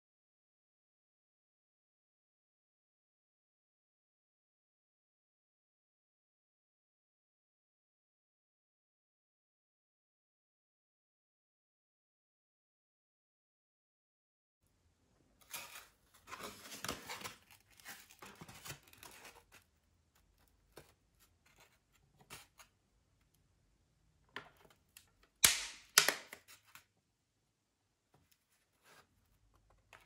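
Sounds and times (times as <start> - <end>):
rustling and scraping: 15.4 - 22.8.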